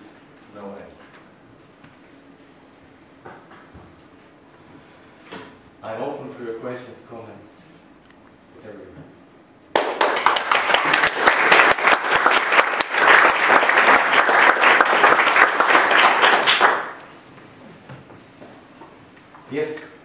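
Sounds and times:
audience applauding: 9.7 - 17.1.

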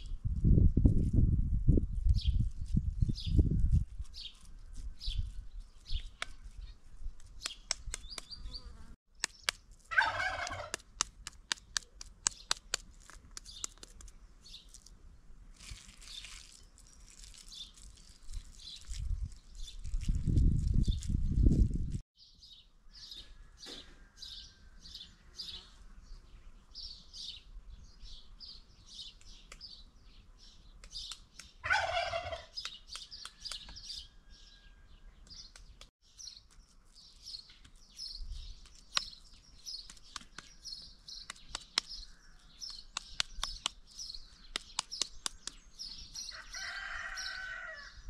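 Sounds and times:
small birds chirping: 2.0 - 10.8, 11.4 - 15.0, 15.6 - 48.0
domestic fowl call: 9.9 - 10.8, 31.6 - 32.6.

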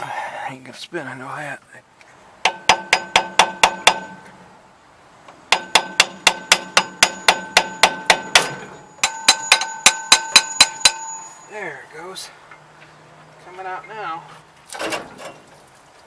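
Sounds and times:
hammer striking metal: 2.4 - 4.3, 5.5 - 11.5.

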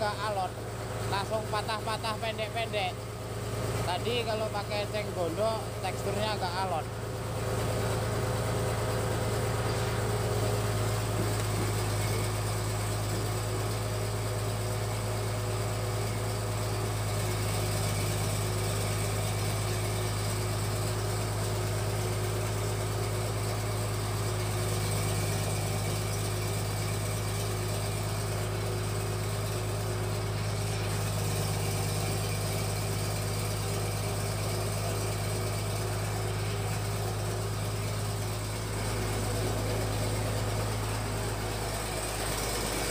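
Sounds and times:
pellet machine humming: 0.0 - 42.9.

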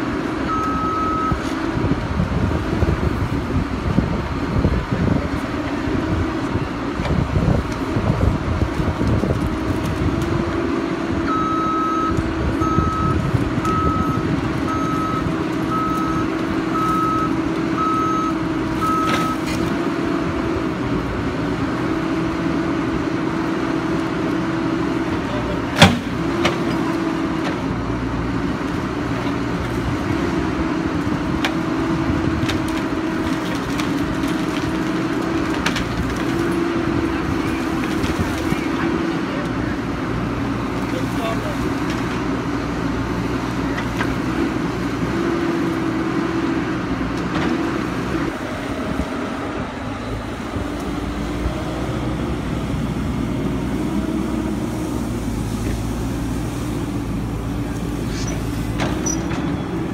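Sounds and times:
excavator engine and hydraulics: 0.0 - 59.9
excavator travel alarm beeping: 0.4 - 1.4, 11.2 - 19.4.

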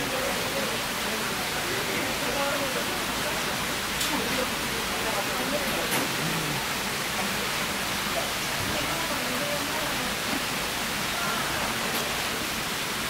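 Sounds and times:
murmured voices: 0.0 - 10.4.

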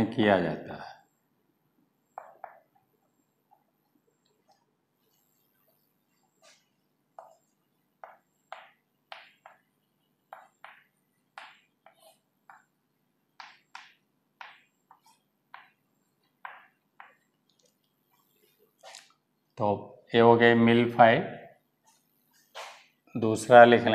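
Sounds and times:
chalk writing on blackboard: 4.4 - 9.7, 10.3 - 12.7, 13.4 - 15.8.

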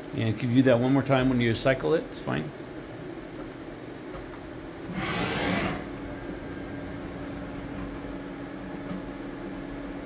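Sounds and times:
machine spindle humming: 4.8 - 10.0
small click: 8.8 - 9.1.

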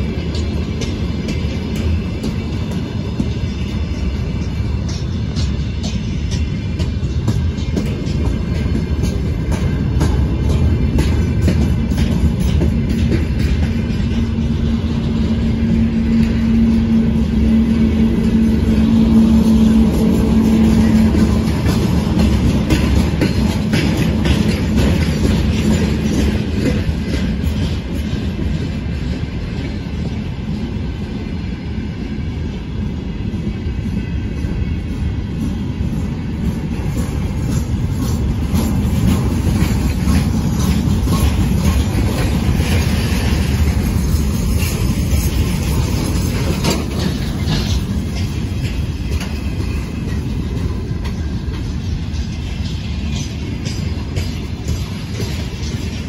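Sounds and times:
wheels clattering over rail joints: 0.0 - 30.6, 35.4 - 56.0
freight train rumbling past: 0.0 - 56.0.

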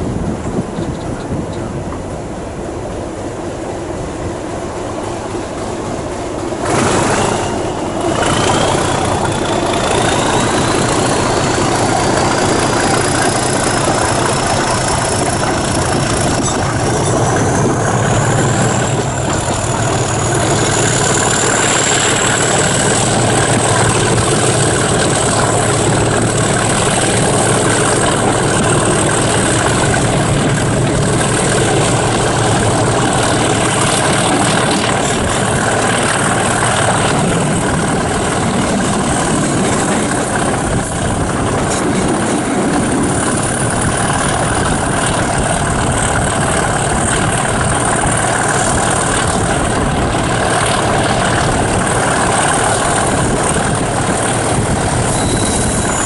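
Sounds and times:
diesel locomotive engine running: 0.0 - 56.0
rushing air: 0.0 - 56.0
train wheel noise: 0.0 - 56.0
steady high whistle: 55.0 - 56.0.

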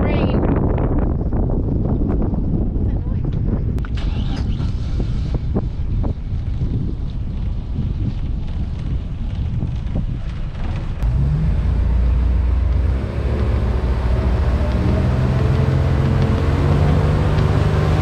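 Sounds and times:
wind on microphone: 0.0 - 18.0
boat motor running: 11.0 - 18.0.

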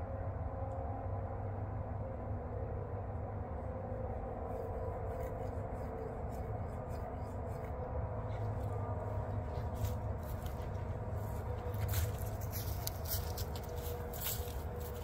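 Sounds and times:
steady low hum: 0.0 - 15.0
footsteps through dry leaves: 5.1 - 15.0.

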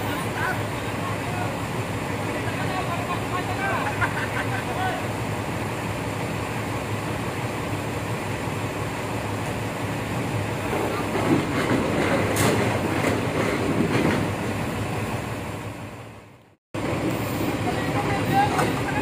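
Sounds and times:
excavator engine running: 0.0 - 19.0
steel tracks clanking: 10.1 - 15.8, 16.8 - 19.0.

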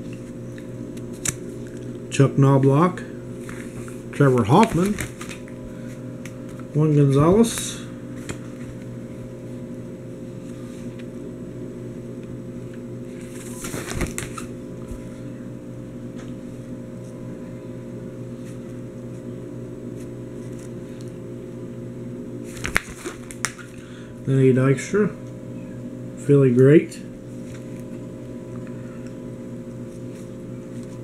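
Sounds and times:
page turning clicks: 4.6 - 5.4, 13.4 - 14.5, 22.5 - 23.6
plastic page crinkling rustle: 4.6 - 5.4, 13.4 - 14.5.

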